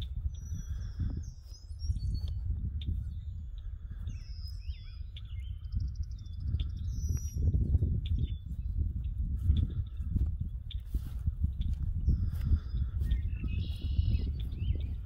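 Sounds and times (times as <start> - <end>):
footsteps through grass: 0.0 - 5.2, 7.1 - 15.0
songbirds chirping: 0.0 - 15.0
wind rumble: 0.0 - 15.0
bird trill: 4.1 - 8.5, 12.6 - 15.0.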